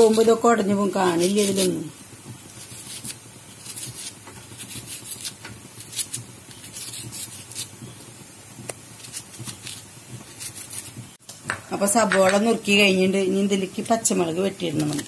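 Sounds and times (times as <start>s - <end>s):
knife slicing onion: 0.0s - 11.1s, 14.5s - 15.0s.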